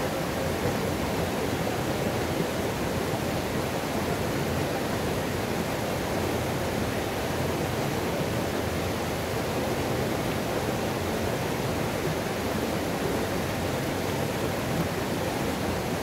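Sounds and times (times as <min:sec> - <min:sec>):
river water rushing over rocks: 0:00.0 - 0:16.0.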